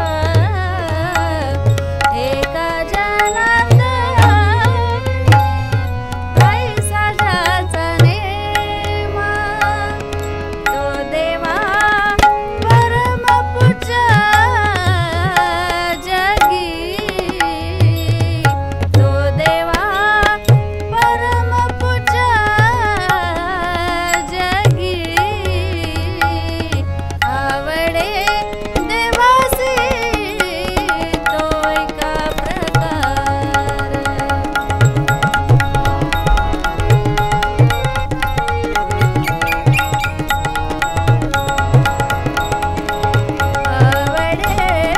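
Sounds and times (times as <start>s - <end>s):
harmonium chords: 0.0s - 44.9s
tabla drumming: 0.0s - 44.9s
woman singing devotional song: 0.0s - 44.9s.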